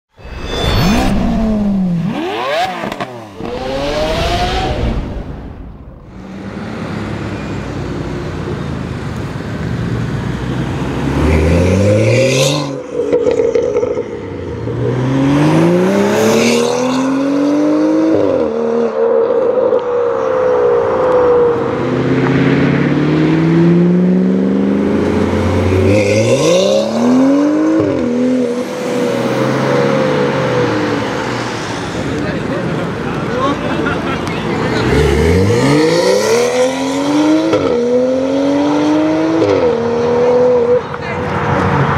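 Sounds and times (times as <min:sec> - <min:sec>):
car engine accelerating hard: 0:34.2 - 0:41.9.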